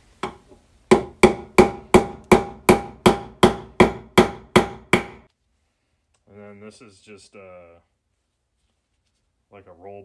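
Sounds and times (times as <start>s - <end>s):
hammer striking metal punch: 0.2s - 5.3s.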